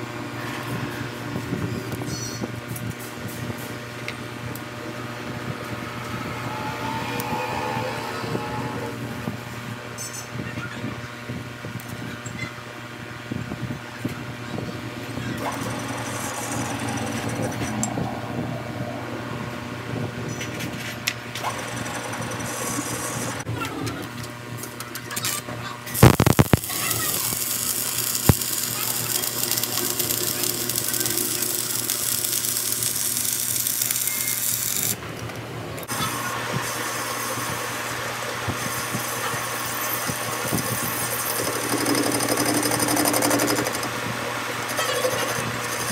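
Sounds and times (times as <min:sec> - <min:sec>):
machine hum: 0:03.2 - 0:09.9, 0:14.5 - 0:23.5, 0:26.0 - 0:35.0, 0:39.7 - 0:45.9
metal lathe running: 0:04.6 - 0:09.6, 0:15.4 - 0:18.8, 0:21.4 - 0:23.4, 0:27.0 - 0:35.0, 0:39.5 - 0:45.9
welding arc crackling and hissing: 0:25.9 - 0:35.0.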